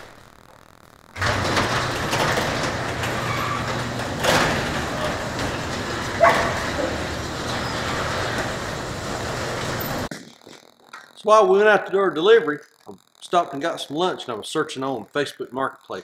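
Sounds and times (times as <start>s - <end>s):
garage door closing: 1.2s - 10.1s.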